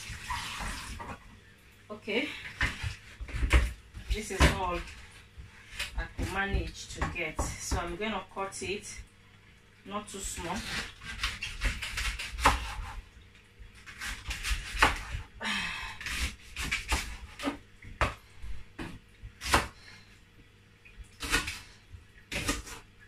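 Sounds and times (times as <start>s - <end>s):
knife chopping on wooden board: 10.6s - 13.0s, 13.9s - 15.2s.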